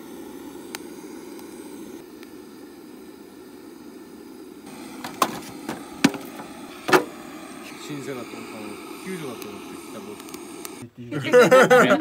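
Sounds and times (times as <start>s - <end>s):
gas torch burning: 0.0s - 12.0s
logs knocking on metal grill: 5.0s - 7.1s.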